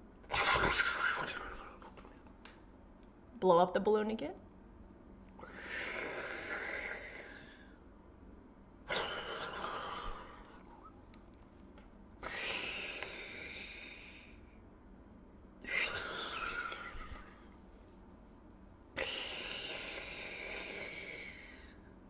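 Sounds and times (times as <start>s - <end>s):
woman breathing deeply: 5.4s - 7.9s, 12.2s - 14.6s, 15.6s - 17.6s, 19.0s - 22.0s.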